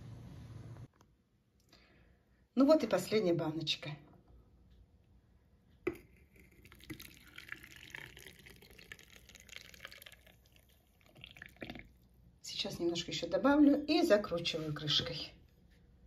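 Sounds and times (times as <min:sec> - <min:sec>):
liquid trickling into a jar: 0:06.0 - 0:12.1.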